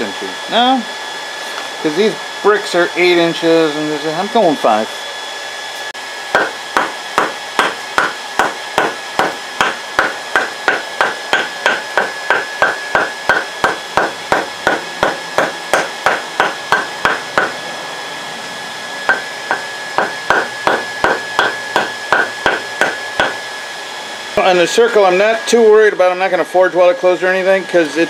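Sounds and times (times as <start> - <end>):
steady high hum: 0.0 - 28.0
mallet striking hot steel: 6.3 - 17.6, 19.0 - 23.4.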